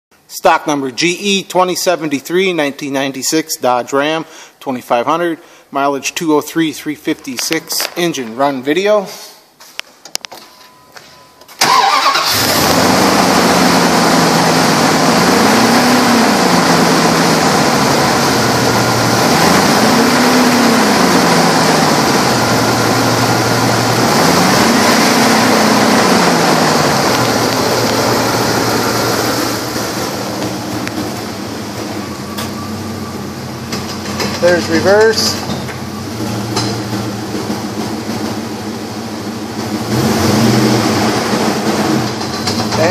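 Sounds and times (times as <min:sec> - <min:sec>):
truck engine cranking and starting: 0:11.5 - 0:42.9
truck engine idling and revving: 0:11.6 - 0:42.9.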